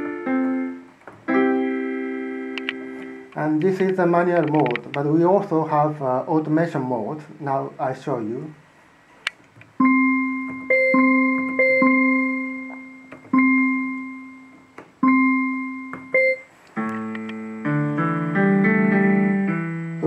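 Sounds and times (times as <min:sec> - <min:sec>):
electronic keyboard tune with chords: 0:00.0 - 0:04.8, 0:09.8 - 0:20.0
repeated electronic keyboard note: 0:00.0 - 0:04.8, 0:09.8 - 0:20.0.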